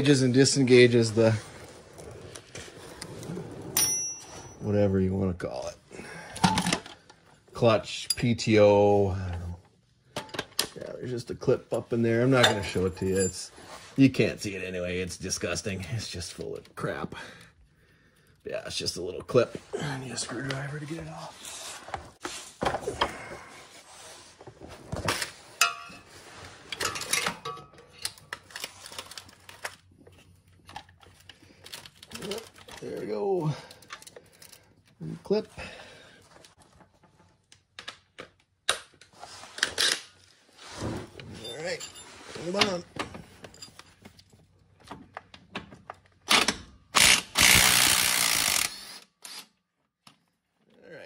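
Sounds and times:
sharp ringing clink: 0:03.8 - 0:04.6.

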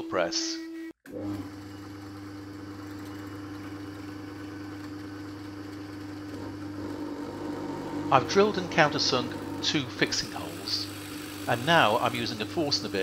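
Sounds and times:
drill press humming: 0:01.1 - 0:13.0.

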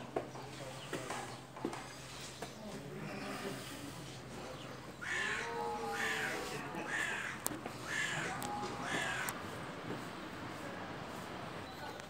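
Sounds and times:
crow calling: 0:04.9 - 0:09.4.

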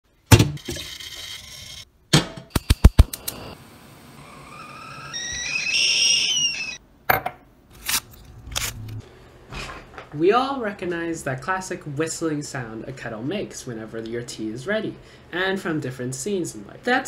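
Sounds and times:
stovetop kettle whistling: 0:04.2 - 0:06.8.

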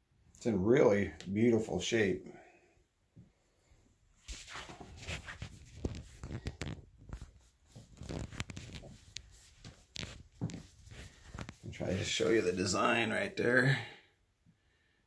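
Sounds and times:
handling clicks and rustling: 0:04.4 - 0:12.1.

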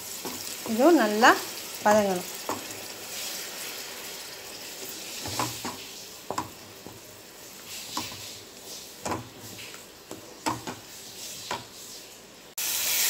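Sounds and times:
low sizzle: 0:00.0 - 0:13.0
wooden spatula scraping pan: 0:04.8 - 0:11.8
spatula knocking against pan: 0:05.2 - 0:07.0, 0:10.1 - 0:10.8.

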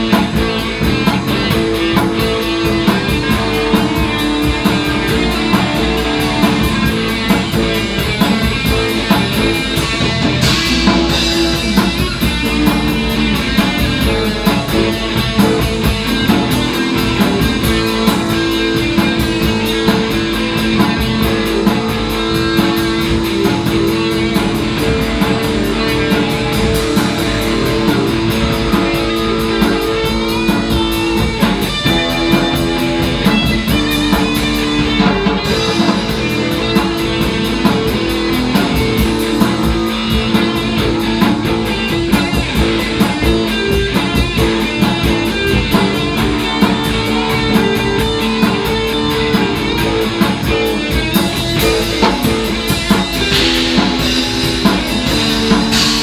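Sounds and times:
drum kit played hard: 0:00.0 - 0:56.0
rock music: 0:00.0 - 0:56.0.

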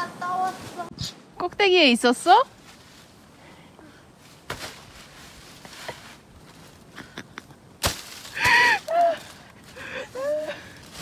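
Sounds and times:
person crying out: 0:08.4 - 0:09.3, 0:10.1 - 0:10.7.

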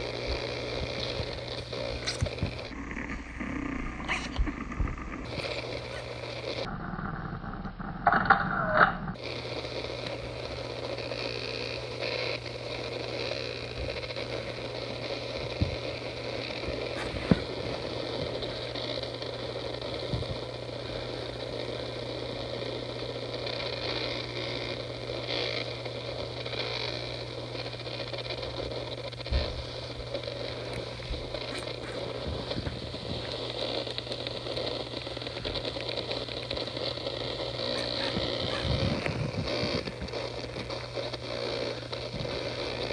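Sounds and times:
steady hum and hiss: 0:00.0 - 0:42.9
distorted phone system sounds: 0:37.7 - 0:40.1.

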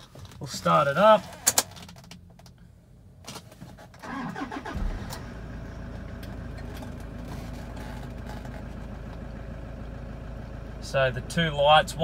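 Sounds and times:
starter cranking engine: 0:04.0 - 0:05.4
diesel engine idling: 0:04.0 - 0:12.0.

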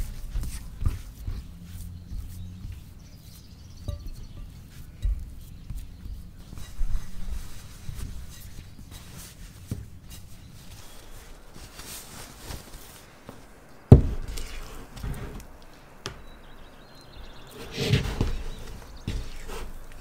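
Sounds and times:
soft handling sounds: 0:00.0 - 0:20.0
cloth towel rustling: 0:04.6 - 0:16.2.

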